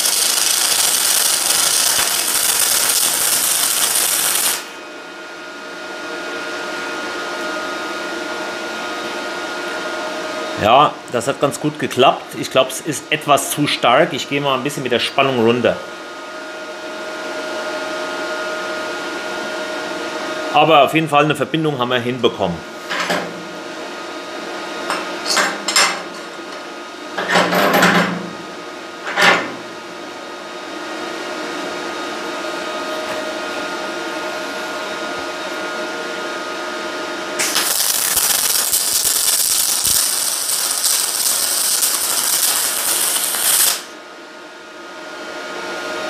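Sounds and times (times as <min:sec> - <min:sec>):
welding arc crackling hiss: 0:00.0 - 0:04.8, 0:37.4 - 0:44.0
welder humming: 0:00.0 - 0:05.2, 0:28.3 - 0:44.2.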